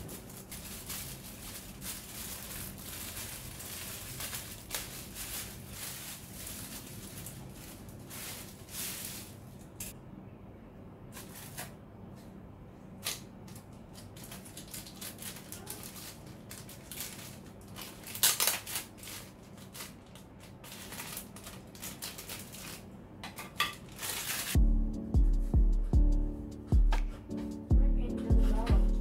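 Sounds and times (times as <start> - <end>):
plastic bags crinkling: 0.0 - 9.9, 13.5 - 22.9, 23.8 - 24.6.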